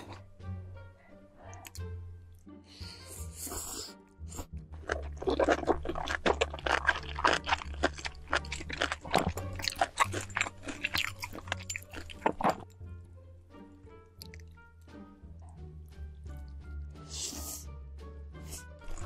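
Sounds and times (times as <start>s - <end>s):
wet chewing of noodles: 3.1s - 12.8s, 14.2s - 14.5s, 18.4s - 19.0s.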